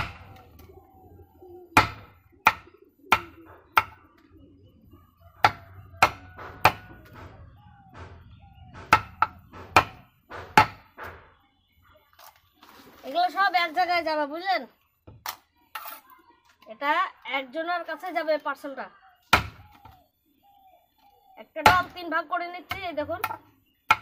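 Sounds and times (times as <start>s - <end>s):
knife chopping on wooden block: 5.4s - 7.3s, 8.8s - 11.2s.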